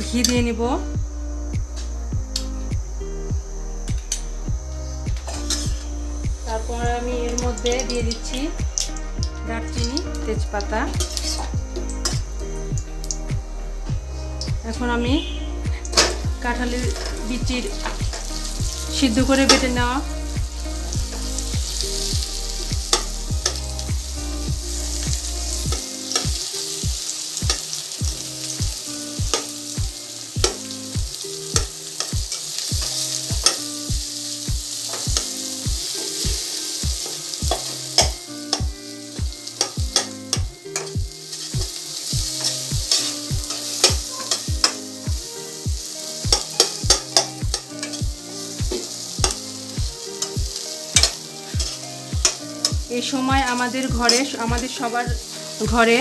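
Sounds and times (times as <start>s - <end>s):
paste sizzling in a pan: 0.0s - 56.0s
spatula scraping and tapping pan: 31.6s - 33.7s, 39.5s - 44.9s, 46.3s - 49.6s, 50.2s - 52.8s.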